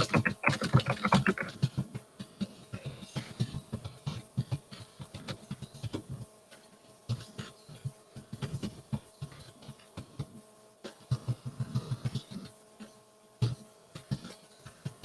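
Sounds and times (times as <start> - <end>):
typing on computer keyboard: 0.0 - 1.5.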